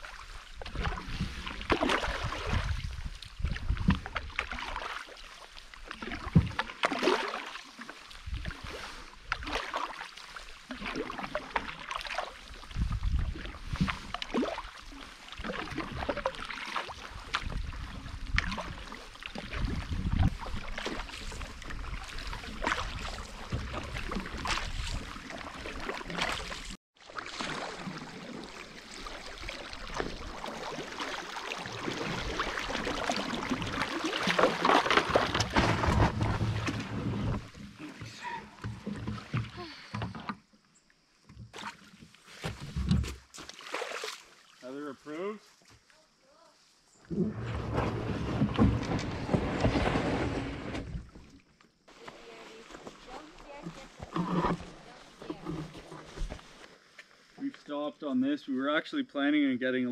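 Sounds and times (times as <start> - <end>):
paddle splashing in water: 0.0 - 40.6, 41.2 - 44.8, 47.0 - 57.5
wind on microphone: 2.3 - 4.3, 12.6 - 14.1, 19.4 - 25.1
wash of water: 4.0 - 38.2.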